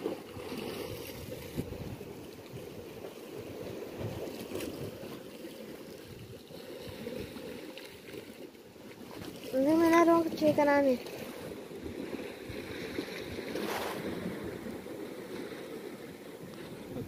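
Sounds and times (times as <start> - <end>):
sea waves on rocky shore: 0.0 - 17.0
wind noise on microphone: 0.4 - 2.8, 3.7 - 5.0, 11.4 - 15.6, 16.4 - 17.0.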